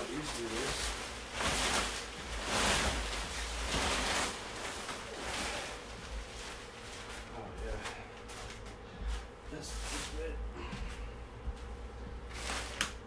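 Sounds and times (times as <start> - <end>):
tent fabric rustling: 0.0 - 10.3.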